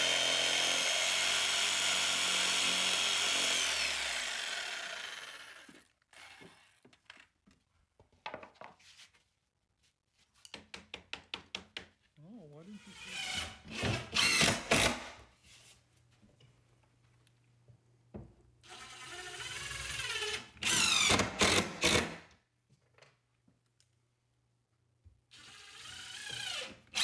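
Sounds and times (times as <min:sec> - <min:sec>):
cordless drill driving screws: 0:00.0 - 0:06.8, 0:12.9 - 0:15.1, 0:18.6 - 0:22.2, 0:25.3 - 0:27.0.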